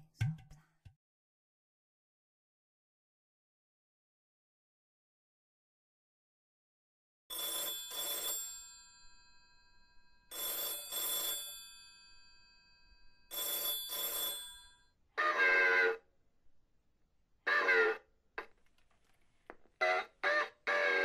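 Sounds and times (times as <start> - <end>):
telephone bell ringing: 7.3 - 16.0, 19.8 - 21.0.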